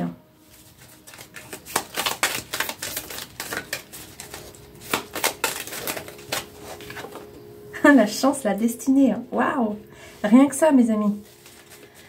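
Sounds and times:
cards shuffling and snapping: 0:00.5 - 0:07.3, 0:11.4 - 0:12.0.

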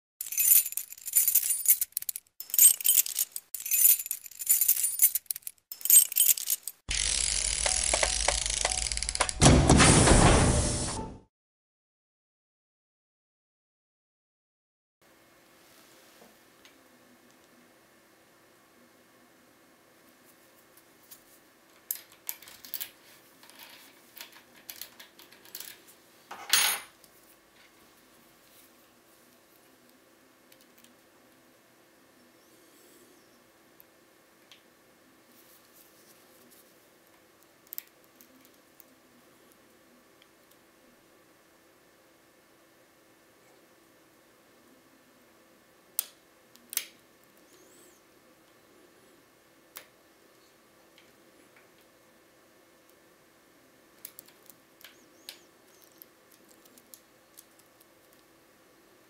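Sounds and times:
bright metallic jingling and shimmer: 0:00.2 - 0:06.8
metal clatter and ring: 0:00.2 - 0:06.8
metallic clicks of tools: 0:00.2 - 0:09.4.

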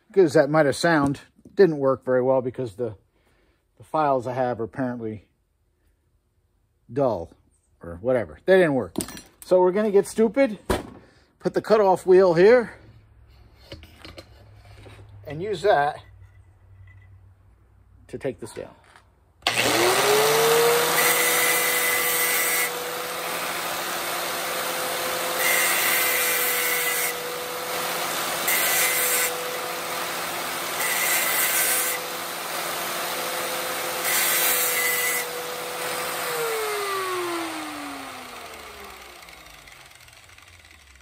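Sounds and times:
angle grinder whining: 0:19.4 - 0:41.0
grinder cutting plastic: 0:19.4 - 0:41.0.

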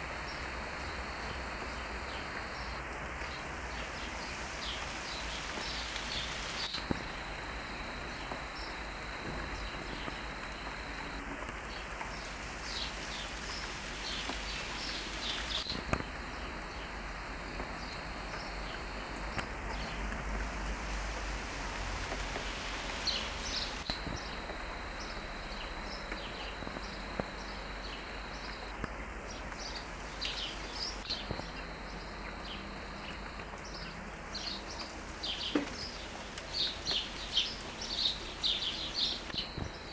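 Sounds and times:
rain on foliage: 0:00.0 - 0:39.9
birds chirping: 0:03.7 - 0:20.0, 0:23.1 - 0:39.9.

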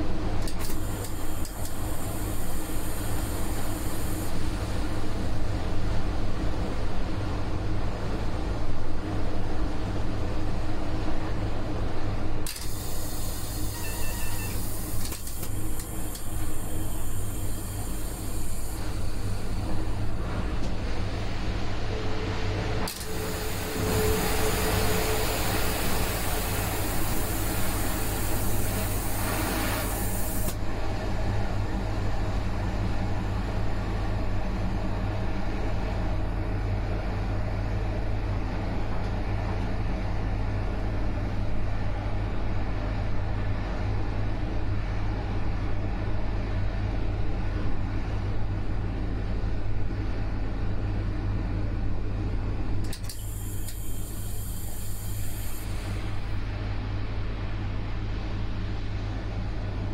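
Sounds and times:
train running: 0:00.0 - 0:59.9
loud rushing hiss: 0:00.7 - 0:04.6, 0:12.5 - 0:20.2, 0:22.9 - 0:30.6, 0:53.1 - 0:56.5.

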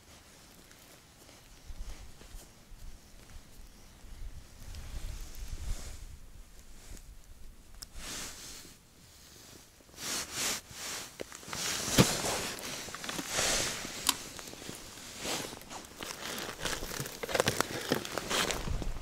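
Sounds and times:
jacket and gloves rustling: 0:07.9 - 0:19.0
boots crunching on snow: 0:10.0 - 0:19.0.

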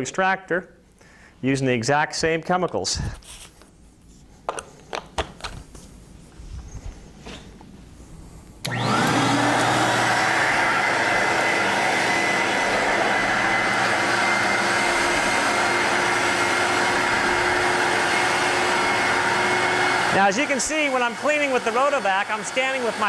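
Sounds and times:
vacuum motor whining: 0:08.6 - 0:23.0
rotating head on wet carpet: 0:08.7 - 0:23.0.

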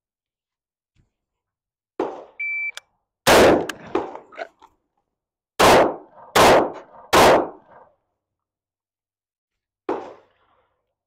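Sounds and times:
pistol shots: 0:03.3 - 0:04.2, 0:05.6 - 0:07.8, 0:09.9 - 0:10.3
rifle shot with echo: 0:03.3 - 0:04.2, 0:05.6 - 0:07.8, 0:09.9 - 0:10.4.

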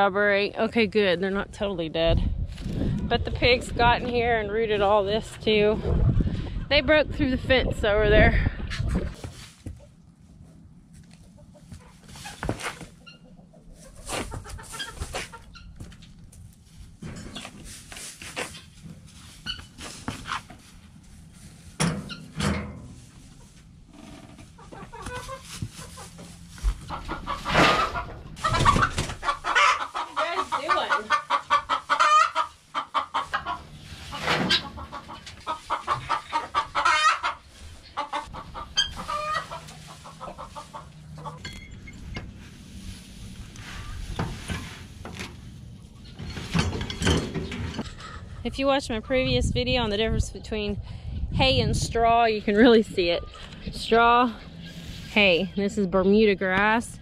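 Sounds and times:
hens clucking: 0:08.2 - 0:16.4, 0:24.3 - 0:48.4
knocks and rustles: 0:43.6 - 0:48.2.

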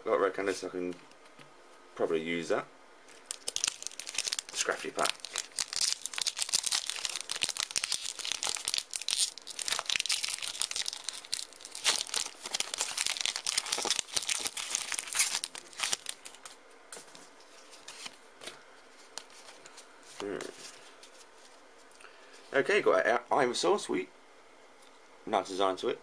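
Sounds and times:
foil wrapper crinkling and tearing: 0:03.1 - 0:16.6.

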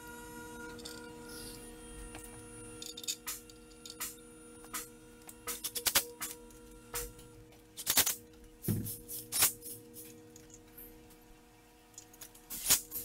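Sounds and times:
steady held tones: 0:00.0 - 0:07.6.

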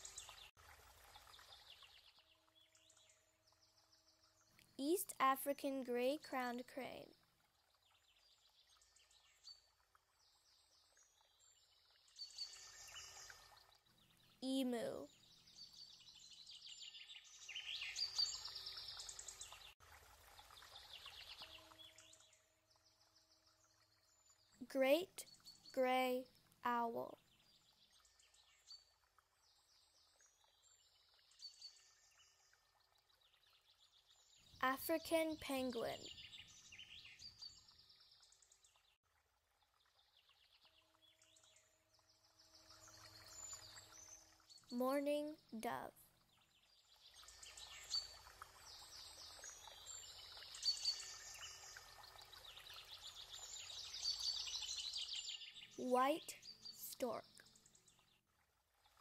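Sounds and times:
songbirds chirping and trilling: 0:00.0 - 0:00.5, 0:07.8 - 0:19.8, 0:20.4 - 0:39.0, 0:39.7 - 0:58.3.

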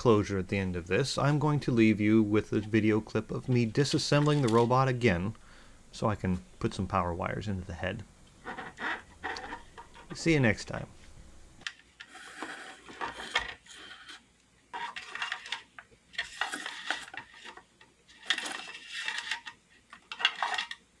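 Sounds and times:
plastic parts clicking and rattling: 0:03.4 - 0:04.8, 0:11.6 - 0:20.9.

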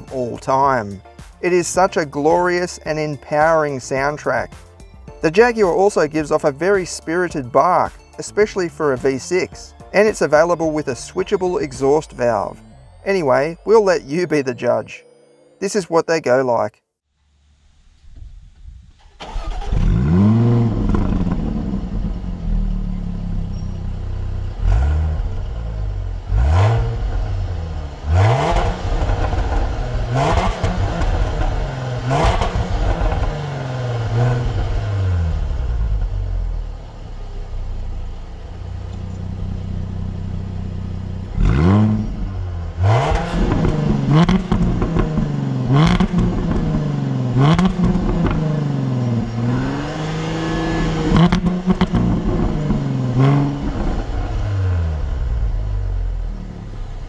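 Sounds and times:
sports car engine revving: 0:19.2 - 0:57.0.

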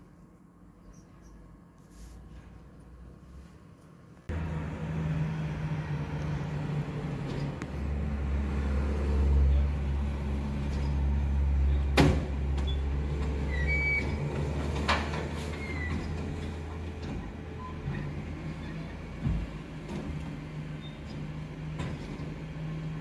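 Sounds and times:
garbage truck engine and hydraulics: 0:00.8 - 0:23.0
short squeaks: 0:12.6 - 0:14.6, 0:15.3 - 0:16.5, 0:17.6 - 0:19.0.

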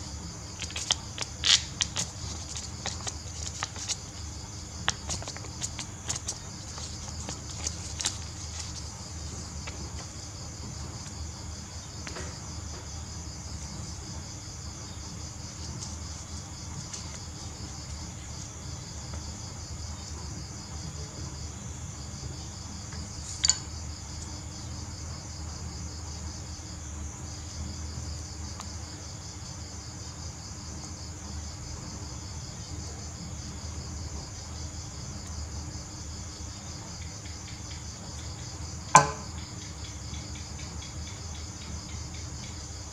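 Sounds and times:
insects trilling: 0:00.0 - 0:42.9.

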